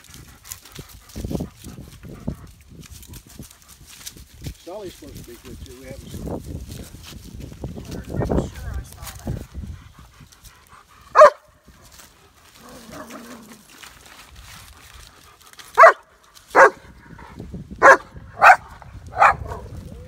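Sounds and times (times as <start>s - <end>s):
dog barking: 11.1s - 11.5s, 15.8s - 16.8s, 17.8s - 19.7s.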